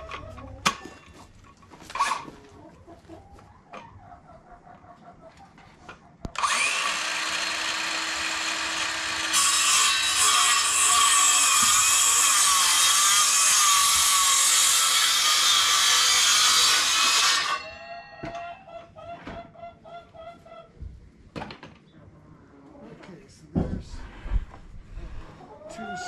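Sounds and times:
saw cutting wood: 6.3s - 17.7s.

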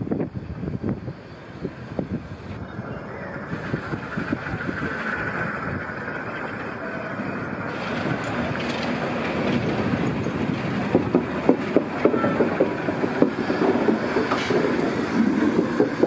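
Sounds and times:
steady rushing noise: 0.0s - 16.0s
train wheels knocking and clanking: 7.7s - 16.0s.

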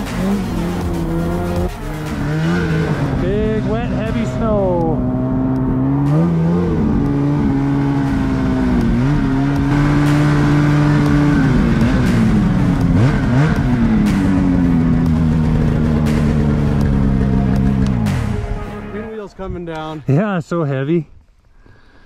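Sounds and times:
snowmobile engine revving: 0.0s - 19.1s.

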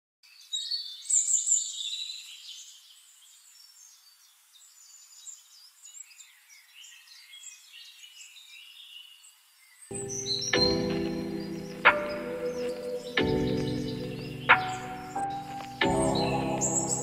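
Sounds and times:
birds chirping: 0.3s - 17.0s.

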